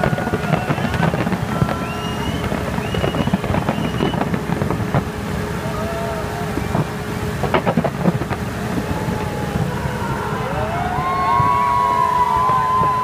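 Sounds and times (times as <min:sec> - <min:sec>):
crowd rumble: 0:00.0 - 0:13.0
fireworks bangs: 0:00.0 - 0:13.0
long sliding tones: 0:00.0 - 0:13.0.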